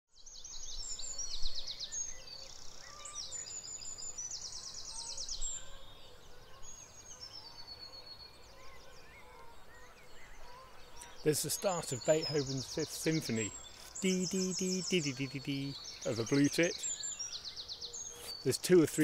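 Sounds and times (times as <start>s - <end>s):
songbirds singing: 0.1s - 19.0s.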